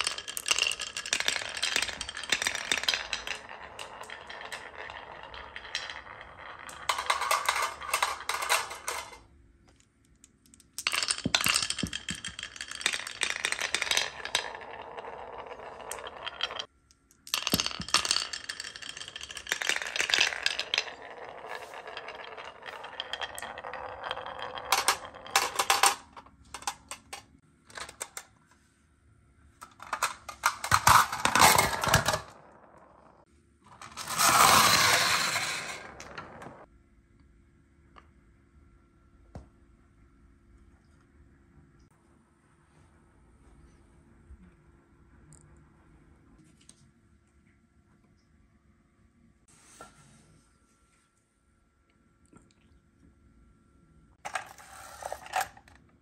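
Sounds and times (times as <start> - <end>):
glass marbles rolling on wood: 0.0 - 9.2, 10.7 - 28.2, 29.6 - 36.7, 54.3 - 55.8.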